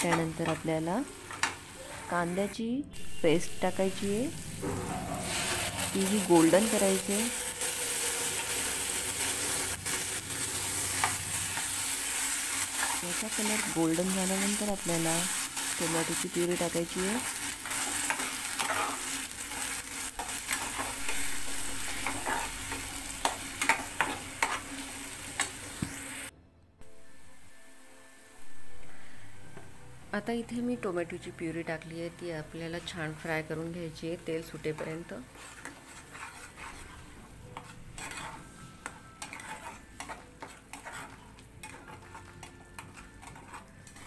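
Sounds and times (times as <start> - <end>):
onion paste sizzling in oil: 0.0 - 26.3, 27.0 - 44.0
spatula scraping and knocking pan: 17.6 - 26.0, 34.6 - 44.0.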